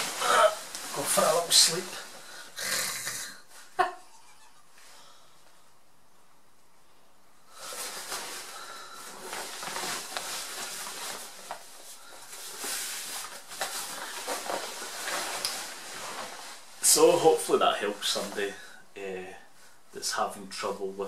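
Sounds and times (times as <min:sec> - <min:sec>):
crinkly bivvy bag rustling: 0:07.6 - 0:17.4.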